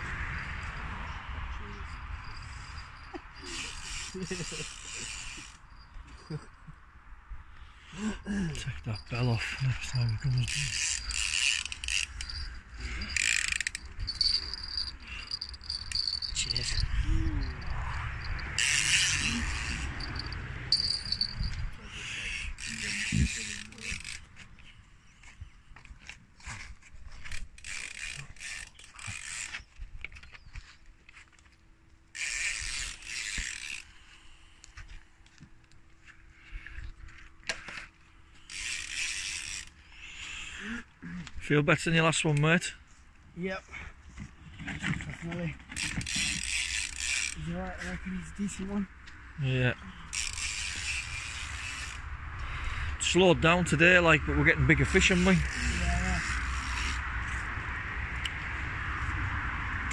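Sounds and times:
fishing reel ratchet clicking: 3.5 - 5.6, 10.4 - 21.6, 22.3 - 24.2, 27.3 - 29.6, 32.1 - 34.0, 38.4 - 39.8, 45.8 - 47.5, 50.1 - 52.6, 55.0 - 57.0
wind on microphone: 16.2 - 23.5.

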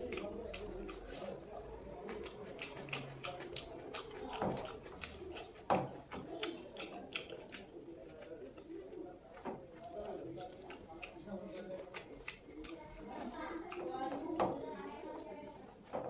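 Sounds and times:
fingers squishing rice: 0.0 - 9.0
wet chewing with mouth clicks: 0.0 - 15.9.

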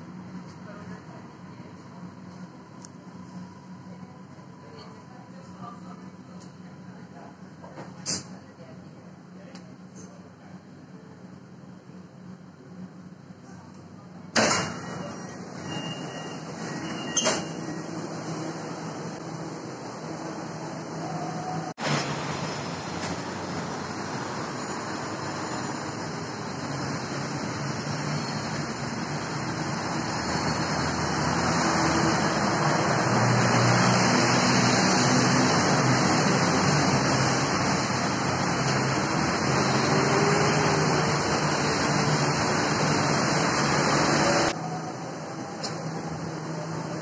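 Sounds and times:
passing cars rushing: 27.0 - 44.6.

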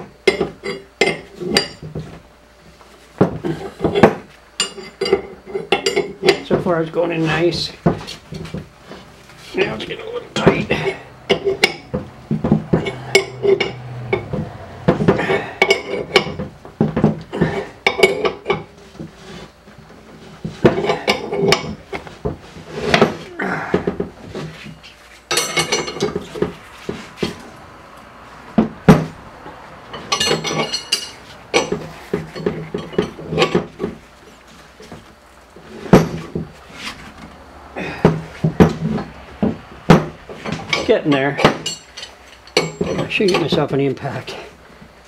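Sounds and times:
wrench clinking against metal: 15.2 - 16.4, 25.3 - 26.2, 29.9 - 33.6, 40.4 - 43.6.

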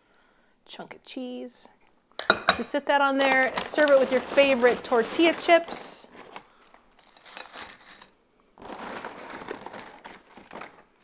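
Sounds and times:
chip bag rustling and crinkling: 3.2 - 11.0.

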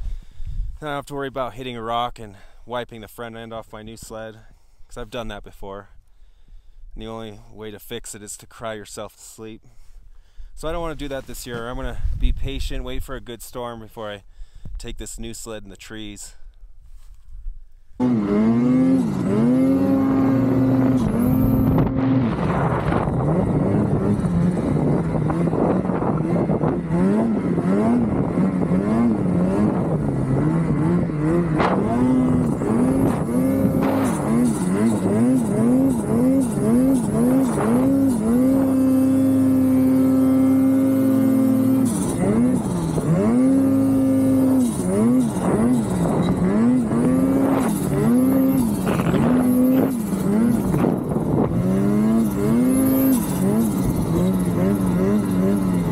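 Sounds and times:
snowmobile engine revving: 18.0 - 55.9.

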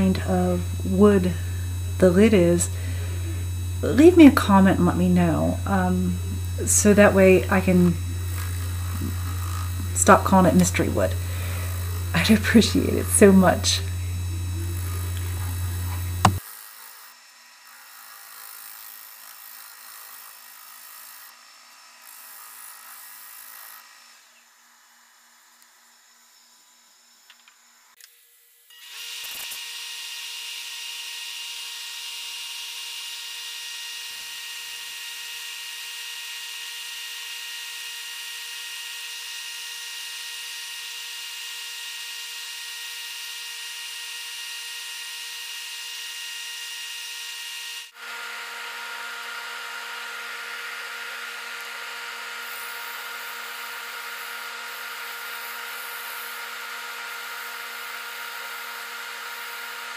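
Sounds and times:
sanding wood hiss: 0.0 - 17.1
wood lathe whining: 0.0 - 24.4, 28.7 - 59.9.

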